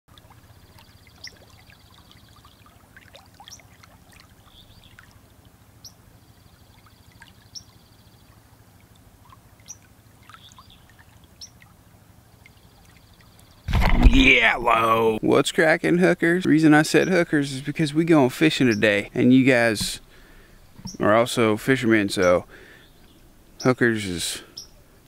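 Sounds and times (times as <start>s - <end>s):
river flowing: 16.6s - 23.6s
bird chirps: 20.8s - 21.1s.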